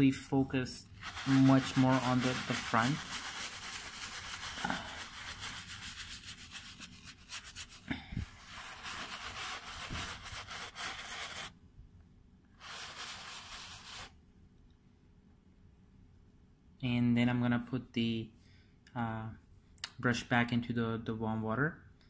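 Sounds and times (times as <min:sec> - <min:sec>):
brush scrubbing a sneaker: 0:00.9 - 0:11.5, 0:12.6 - 0:14.2.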